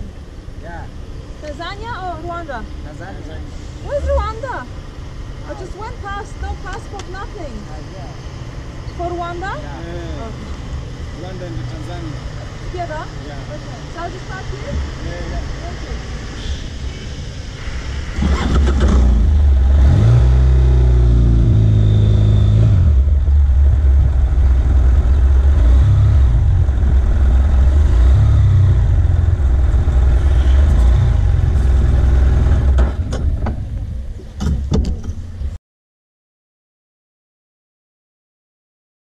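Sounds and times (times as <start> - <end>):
motorcycle engine pulling away: 17.8 - 33.8.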